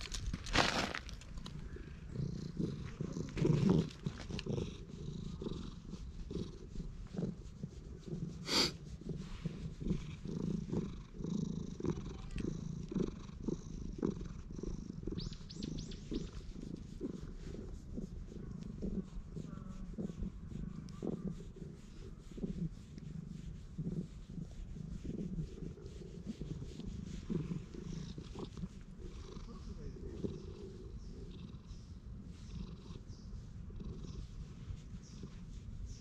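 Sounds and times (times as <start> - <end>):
hand scratching fur: 0.0 - 11.3, 16.0 - 30.8
cat purring: 0.0 - 36.0.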